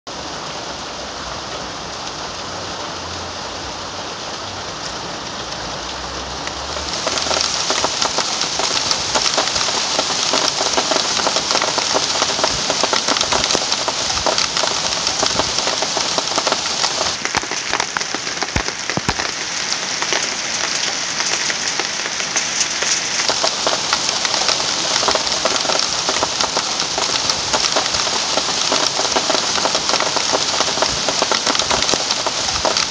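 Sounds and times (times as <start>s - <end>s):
sleet and hail pattering: 6.8s - 32.9s.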